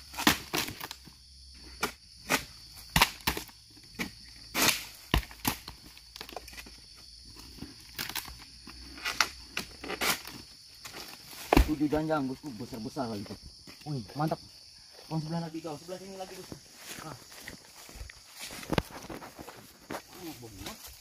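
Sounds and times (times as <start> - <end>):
sickle chopping palm stalks: 0.0 - 6.7, 7.5 - 12.1.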